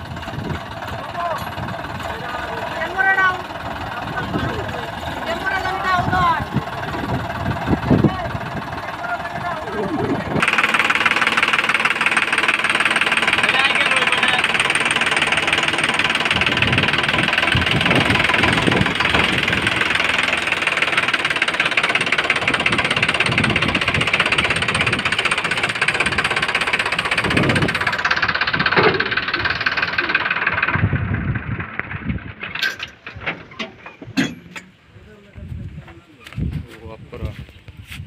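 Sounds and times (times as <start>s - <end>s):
tractor diesel engine clatter: 0.0s - 37.4s
scattered knocks: 10.4s - 30.8s.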